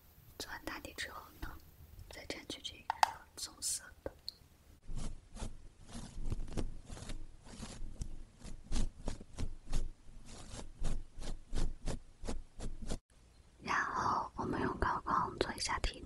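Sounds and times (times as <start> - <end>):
brush stroking scratchily: 4.8 - 13.0.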